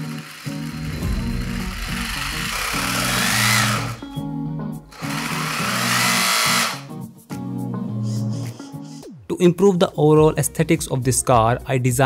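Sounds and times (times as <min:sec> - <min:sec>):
background music: 0:00.0 - 0:12.0
electric motors whirring: 0:04.9 - 0:06.9.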